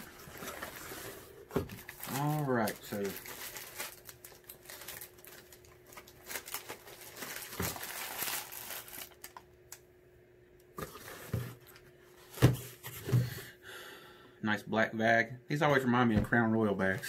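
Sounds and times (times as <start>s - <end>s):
plastic packaging crinkling: 0.0s - 9.8s.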